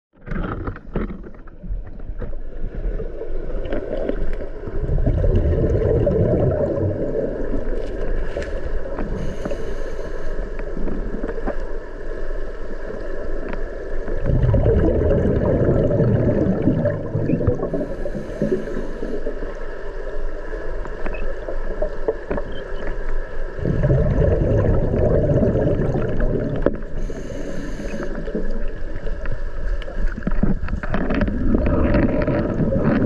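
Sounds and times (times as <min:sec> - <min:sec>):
muffled underwater rushing water: 0:00.2 - 0:33.0.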